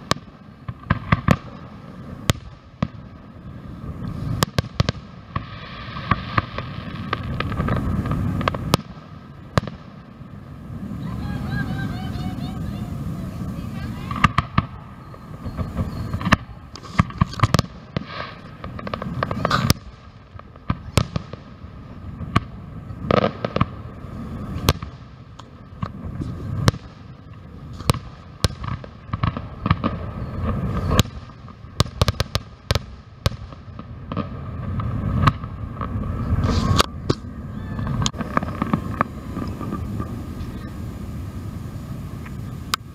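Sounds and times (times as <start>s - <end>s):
fireworks bangs and crackles: 0.0s - 42.9s
low rumble: 33.6s - 42.9s.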